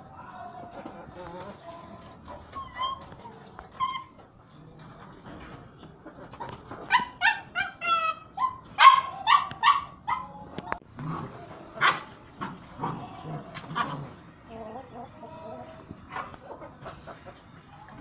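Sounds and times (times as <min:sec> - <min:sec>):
puppy yelping: 0:02.4 - 0:04.2, 0:06.4 - 0:10.8.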